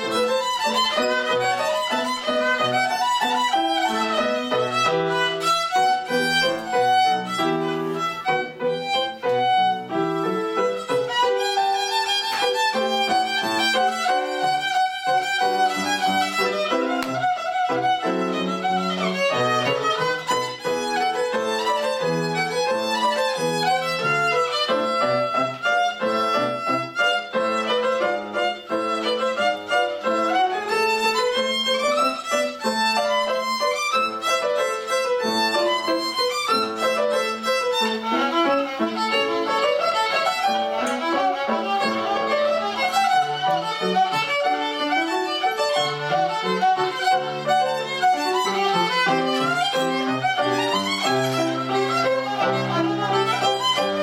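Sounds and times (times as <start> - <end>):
violin playing quick notes: 0.0 - 24.6
piano accompaniment: 0.0 - 54.0.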